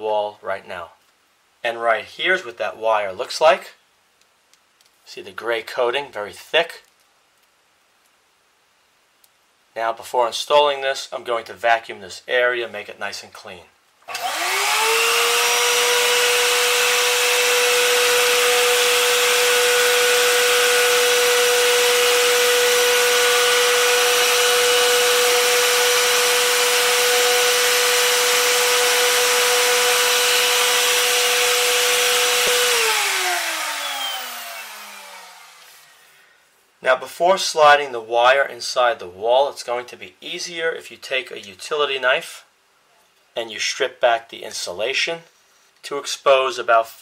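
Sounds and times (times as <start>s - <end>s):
vacuum cleaner motor whine: 14.1s - 36.0s.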